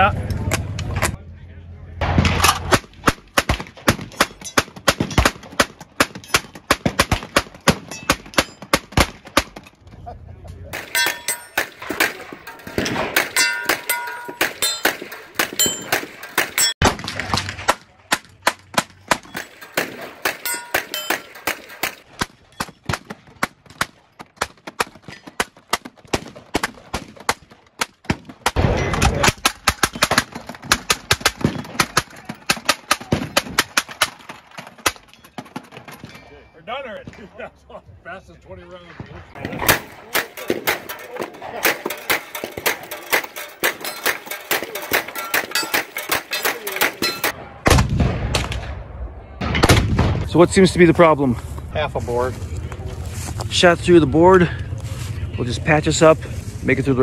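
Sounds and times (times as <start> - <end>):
hand-cranked gatling gun firing: 10.8 - 35.5, 39.6 - 47.4.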